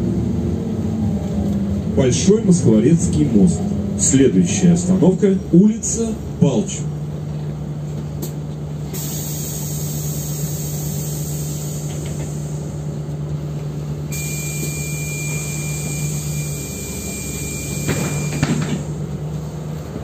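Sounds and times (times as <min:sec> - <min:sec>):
bus engine hum: 0:00.0 - 0:20.0
hiss: 0:09.0 - 0:12.6.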